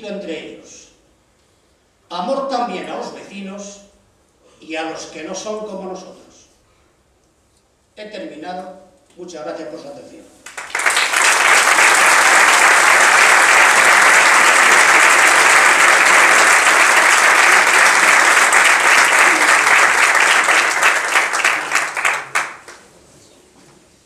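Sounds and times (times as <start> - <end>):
audience applauding: 10.4 - 22.8.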